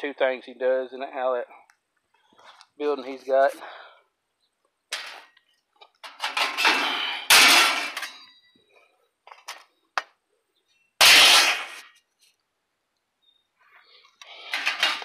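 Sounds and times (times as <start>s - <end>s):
steel scraps clanking and clattering: 6.0s - 8.4s, 11.0s - 11.8s, 14.4s - 15.0s.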